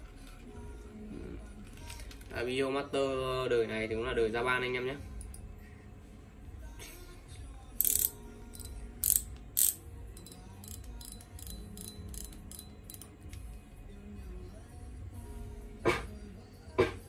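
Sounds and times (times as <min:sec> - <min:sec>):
faint background music: 0:00.0 - 0:17.0
fishing reel clacks: 0:07.8 - 0:13.1
fishing reel clicking: 0:07.8 - 0:13.1.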